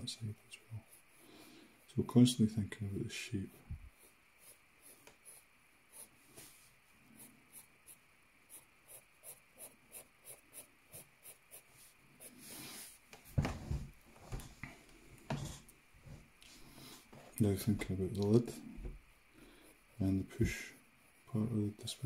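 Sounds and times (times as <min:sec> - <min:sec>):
pencil scratching on paper: 0:00.8 - 0:01.2, 0:03.5 - 0:06.1, 0:07.2 - 0:12.9, 0:18.4 - 0:22.0.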